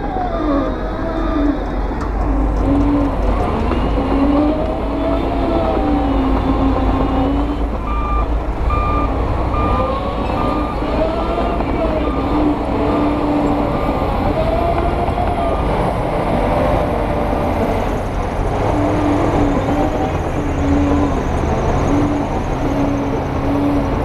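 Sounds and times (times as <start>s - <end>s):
heavy diesel engine running: 0.0s - 24.0s
reversing alarm beeping: 7.6s - 14.7s.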